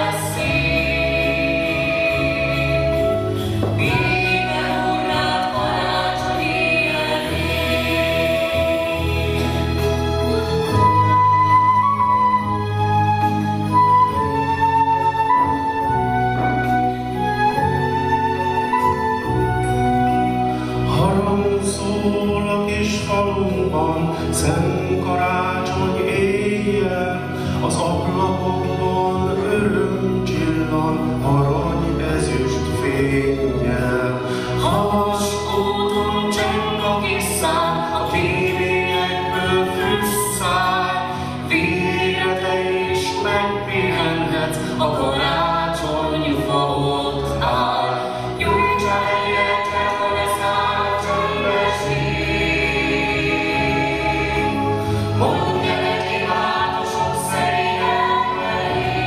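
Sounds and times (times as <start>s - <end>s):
choir singing: 0.0s - 59.0s
flute: 0.0s - 59.0s
string accompaniment: 0.0s - 59.0s
man singing into a microphone: 20.9s - 53.1s.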